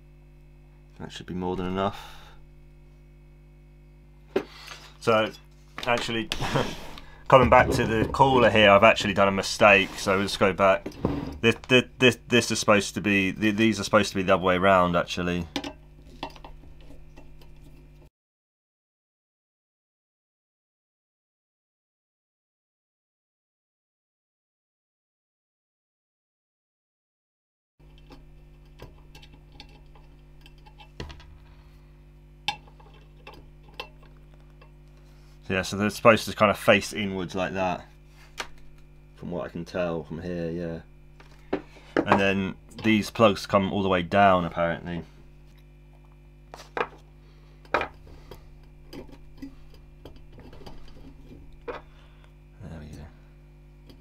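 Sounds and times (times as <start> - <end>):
steady low hum: 0.0 - 18.1, 27.8 - 54.0.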